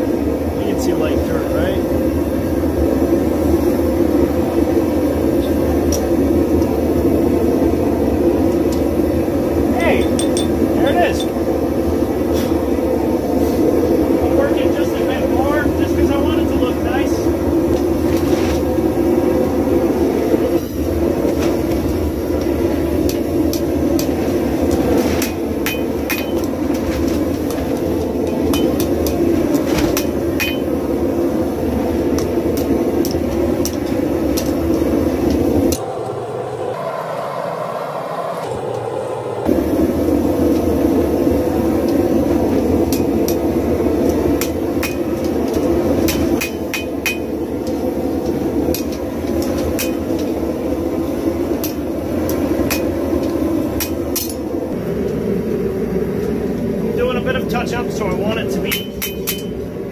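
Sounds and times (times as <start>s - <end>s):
loud steady rushing noise: 0.0s - 59.9s
hammer striking steel on anvil: 10.0s - 10.6s, 25.2s - 26.5s, 30.0s - 30.7s, 46.1s - 47.3s, 49.8s - 50.2s, 51.6s - 53.0s, 58.7s - 59.6s.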